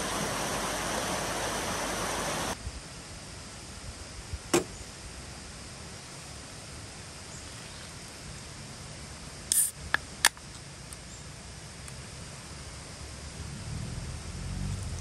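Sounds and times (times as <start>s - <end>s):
stream flowing: 0.0s - 2.6s.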